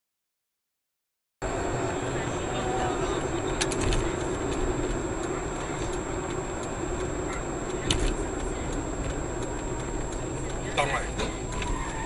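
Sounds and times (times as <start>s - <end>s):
car engine and road noise: 1.4s - 12.0s
sharp clicks: 3.6s - 12.0s.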